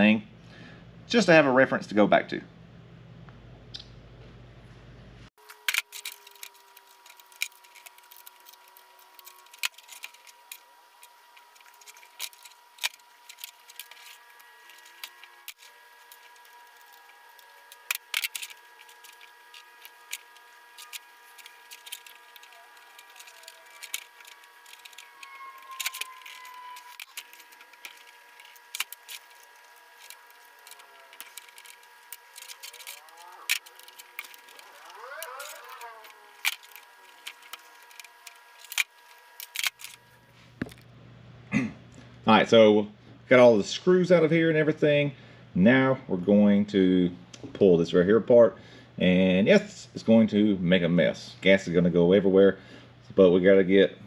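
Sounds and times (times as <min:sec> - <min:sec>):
short rising squeaks: 0:07.6 - 0:39.2.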